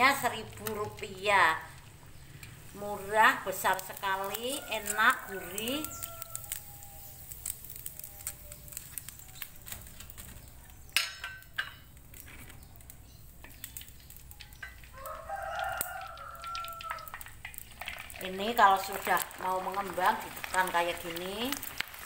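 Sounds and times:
crackers frying in oil: 0.0s - 22.0s
rooster crowing: 4.2s - 8.6s, 14.9s - 17.2s.

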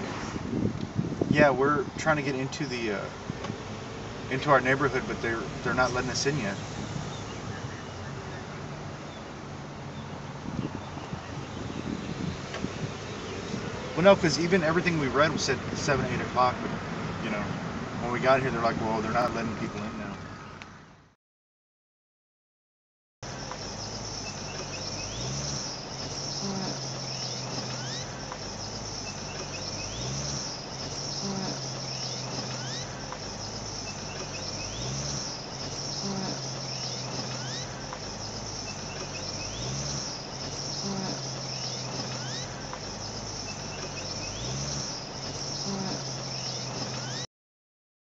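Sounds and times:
cricket-like high chirring: 23.3s - 47.2s.

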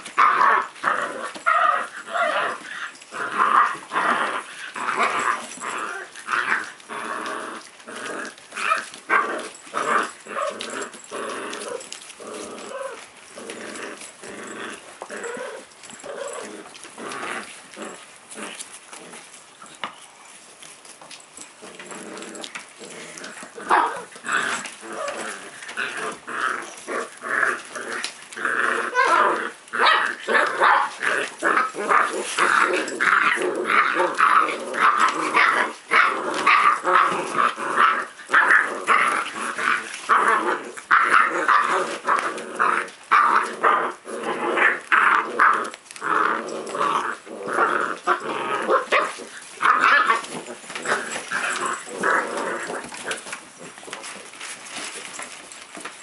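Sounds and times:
puppies yipping barking and growling: 0.0s - 56.0s.

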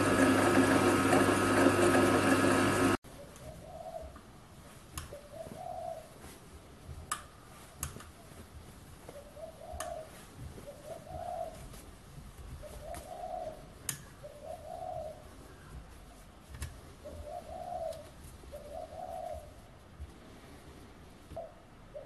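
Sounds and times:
dove cooing: 9.2s - 11.6s, 12.6s - 15.7s, 17.0s - 19.6s.

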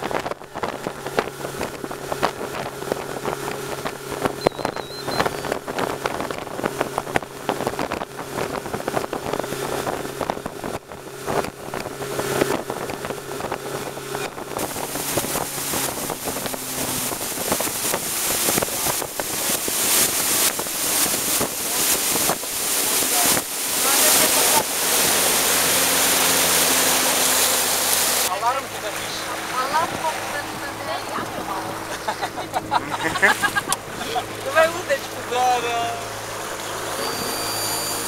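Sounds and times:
wind on microphone: 0.0s - 28.3s, 29.2s - 34.5s
motorboat engine running: 0.0s - 38.0s
water rushing past hull: 0.0s - 38.0s.

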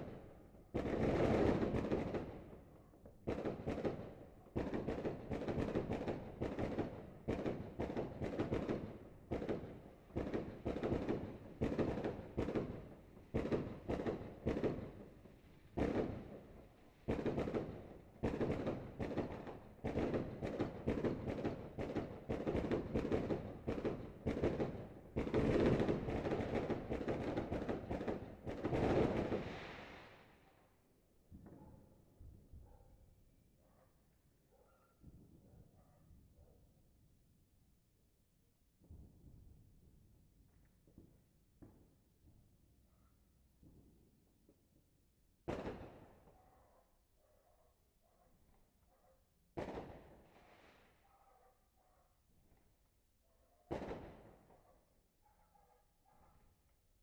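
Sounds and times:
fireworks and firecrackers banging: 0.0s - 30.4s, 38.8s - 40.0s, 43.6s - 44.6s, 45.4s - 46.4s, 49.6s - 51.0s, 53.7s - 54.7s.

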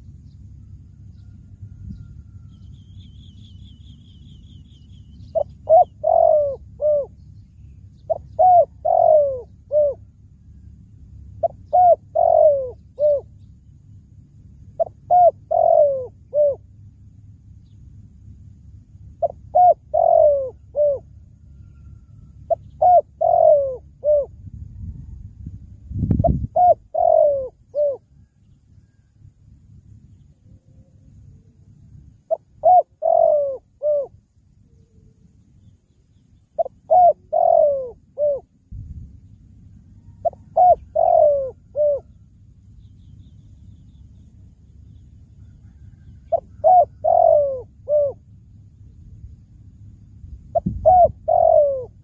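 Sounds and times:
dove cooing: 4.9s - 7.3s, 8.0s - 10.2s, 11.4s - 13.4s, 14.8s - 16.7s, 19.1s - 25.3s, 26.1s - 29.1s, 32.2s - 35.2s, 36.6s - 38.6s, 39.9s - 42.3s, 43.9s - 48.3s, 50.4s - 52.0s.

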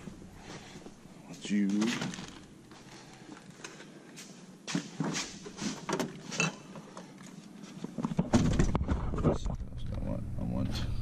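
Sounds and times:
bottles rattling: 1.8s - 2.6s.

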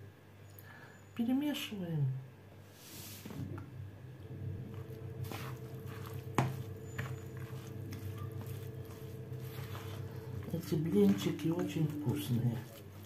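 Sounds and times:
low steady hum: 0.0s - 13.0s
spoon stirring wet batter: 4.6s - 13.0s.

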